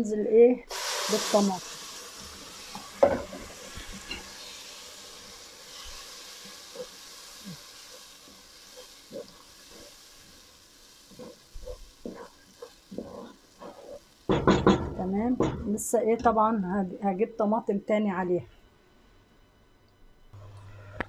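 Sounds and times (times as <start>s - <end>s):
tomato sizzling in hot oil: 0.6s - 15.4s
wooden spoon stirring in pot: 5.6s - 14.4s.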